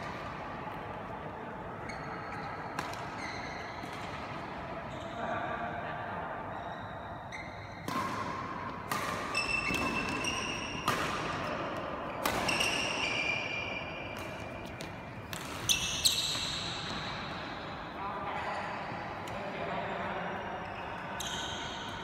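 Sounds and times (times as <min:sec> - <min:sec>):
shoes squeaking on court floor: 0:01.8 - 0:05.2, 0:06.5 - 0:17.4
racket striking shuttlecock: 0:02.8 - 0:03.2, 0:07.8 - 0:13.2, 0:14.0 - 0:17.3.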